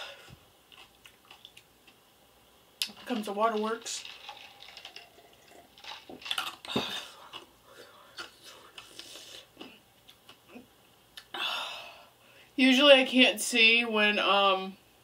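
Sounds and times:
chewing raw onion: 0.2 - 2.0.

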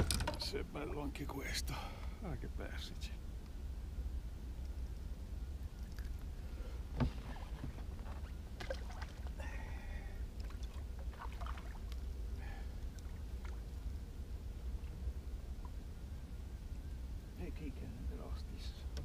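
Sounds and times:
steady low rumble: 0.0 - 19.0
light water noises: 4.6 - 16.4.

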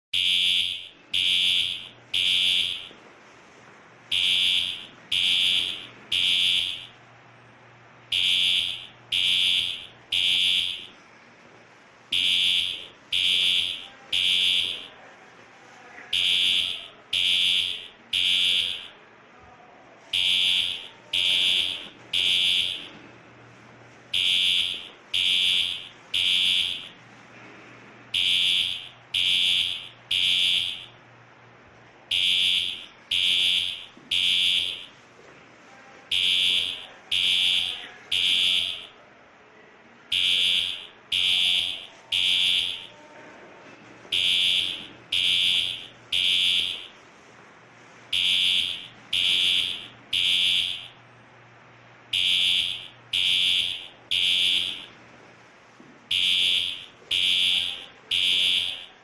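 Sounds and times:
fire alarm horn blasts: 0.2 - 3.0, 4.1 - 7.0, 8.1 - 11.0, 12.1 - 15.0, 16.1 - 19.0, 20.1 - 23.0, 24.1 - 27.0, 28.1 - 31.0, 32.1 - 35.0, 36.1 - 38.9, 40.1 - 43.0, 44.1 - 47.0, 48.1 - 51.0, 52.1 - 54.9, 56.1 - 59.0.

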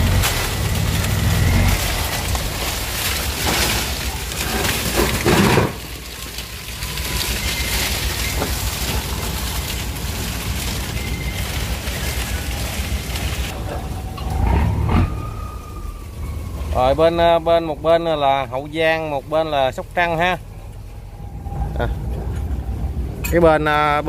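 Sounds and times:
palm fronds scraping a boat: 0.0 - 15.5.

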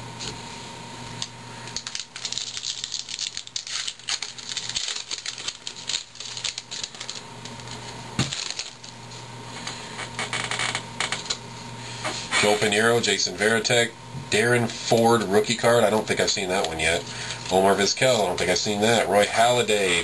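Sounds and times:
wrapper crinkling as torn: 1.7 - 9.0.

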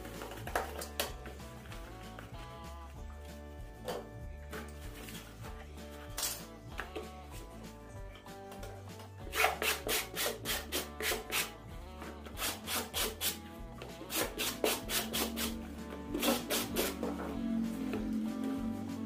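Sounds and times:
wooden stick rubbing on foam: 12.3 - 17.2.

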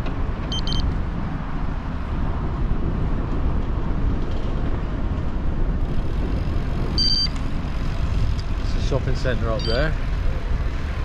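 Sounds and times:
road rumble: 0.0 - 11.0
wind rush on microphone: 0.0 - 11.0
high beep: 0.5 - 0.8, 7.0 - 7.3, 9.6 - 9.9.

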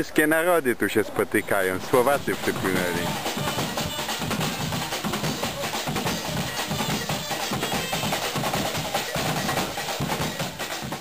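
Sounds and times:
percussion-driven music: 2.0 - 11.0.

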